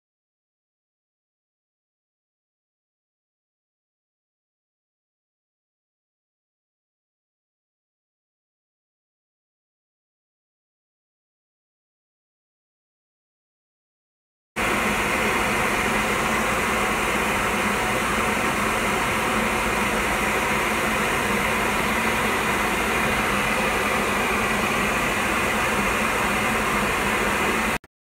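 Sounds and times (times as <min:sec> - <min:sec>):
dust collector running: 0:14.6 - 0:27.8
wood lathe spinning: 0:14.6 - 0:27.8.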